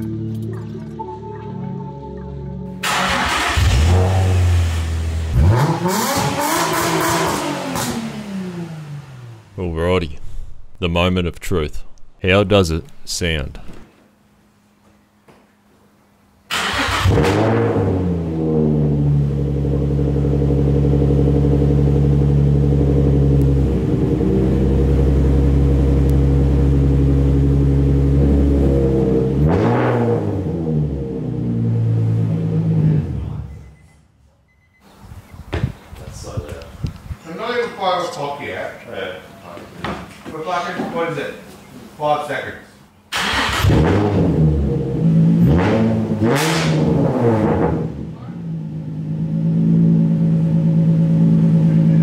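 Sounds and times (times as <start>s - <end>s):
car engine idling and revving: 2.8s - 9.6s, 16.5s - 33.6s, 43.1s - 52.0s.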